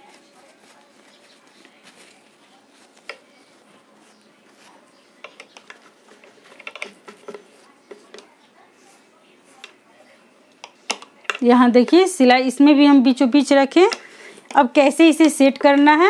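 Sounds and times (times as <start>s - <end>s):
small clicks and taps: 5.2s - 8.3s.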